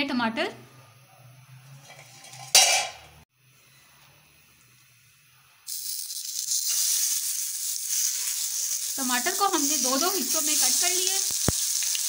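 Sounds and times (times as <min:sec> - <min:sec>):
tomatoes sizzling in hot oil: 0:05.6 - 0:12.0.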